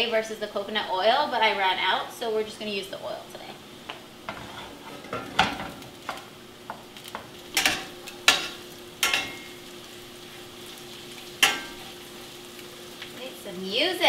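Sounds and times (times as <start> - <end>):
tortilla sizzling in oil: 3.6 - 14.0.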